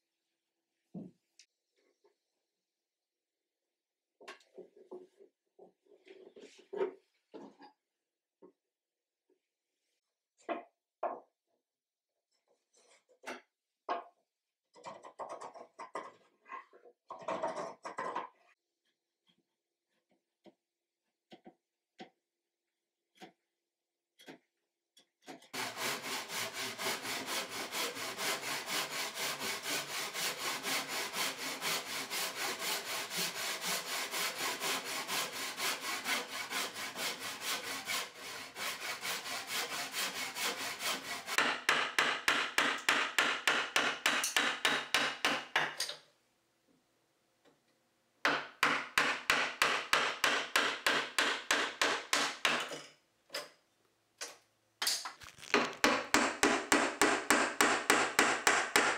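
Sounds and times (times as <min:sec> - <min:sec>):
handsaw cutting wood: 0:25.5 - 0:45.4, 0:48.6 - 0:52.6, 0:55.2 - 0:58.9.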